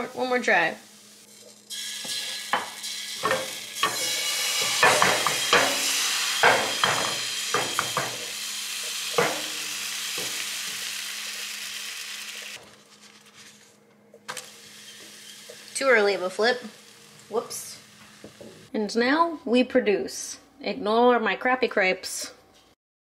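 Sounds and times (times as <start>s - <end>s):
batter sizzling in frying pan: 0.0s - 13.3s, 14.3s - 18.7s.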